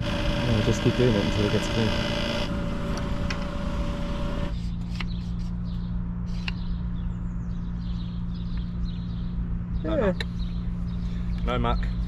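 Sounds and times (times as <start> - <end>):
pump humming: 0.0 - 4.5.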